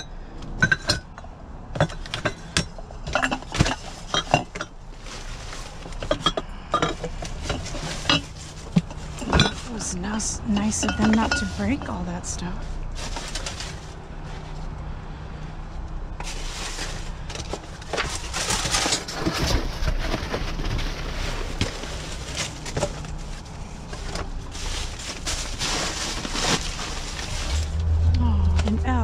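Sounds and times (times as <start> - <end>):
plastic wrap crinkling: 16.3 - 27.8.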